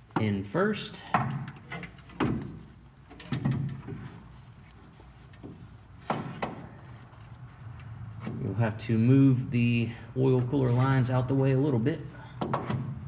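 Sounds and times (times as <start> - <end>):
metal knocking and scraping: 1.0 - 8.6.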